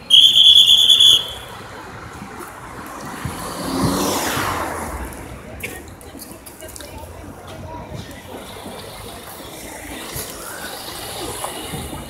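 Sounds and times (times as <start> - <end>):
shrill whistle blast: 0.0 - 1.6
vehicle passing: 1.1 - 5.6.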